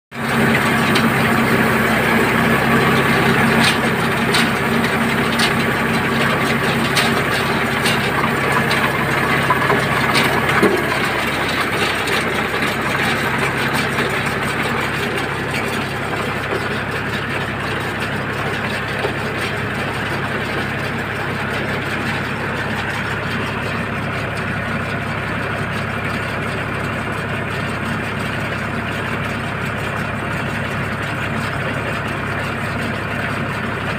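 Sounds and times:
tractor engine running: 0.1 - 33.9
baler pickup turning straw: 0.2 - 24.4.

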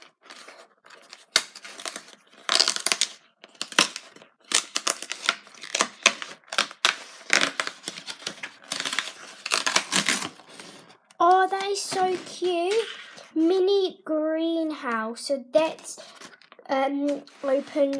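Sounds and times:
cardboard tearing: 0.0 - 10.9.

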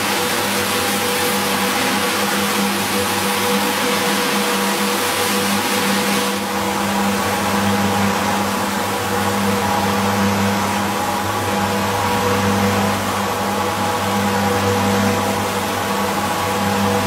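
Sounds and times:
brush scrubbing wet carpet: 0.0 - 6.5
floor scrubber motor humming: 0.0 - 17.0.

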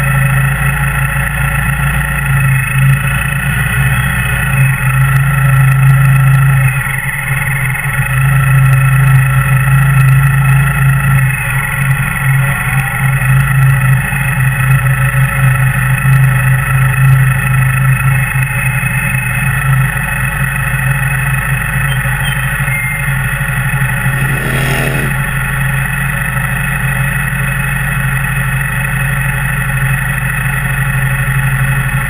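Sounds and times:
motorcycle engine rumbling: 23.8 - 25.5.

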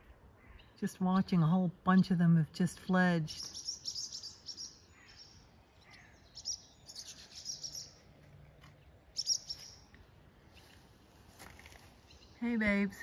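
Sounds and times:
swallows twittering: 3.2 - 8.1, 8.8 - 9.9.

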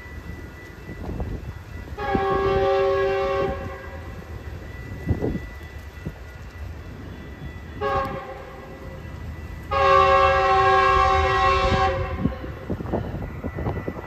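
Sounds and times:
train horn blasts: 2.0 - 4.2, 7.7 - 9.0, 9.7 - 12.6.

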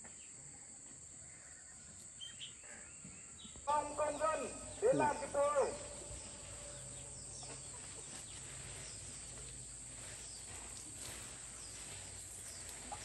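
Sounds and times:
bird chirps: 1.4 - 9.4.

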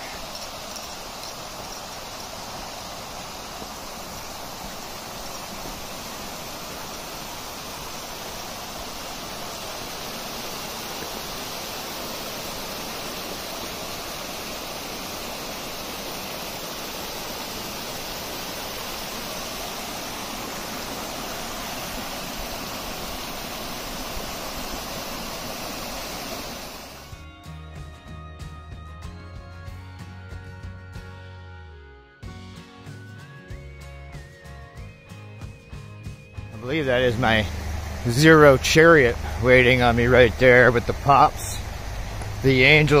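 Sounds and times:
waterfall splashing: 0.0 - 27.1, 36.8 - 43.0.

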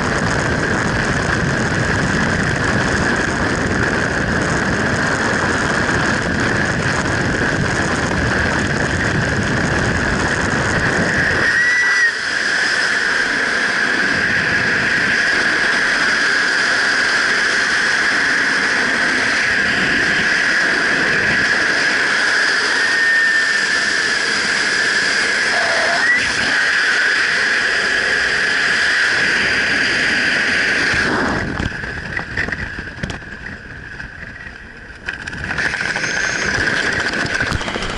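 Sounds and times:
wind rushing over camera: 0.0 - 37.9
steady whistling tone: 11.0 - 13.3, 21.8 - 27.8, 35.6 - 36.9.

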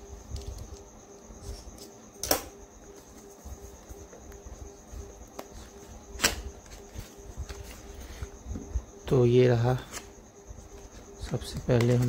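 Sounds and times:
crickets chirring: 0.0 - 12.0.

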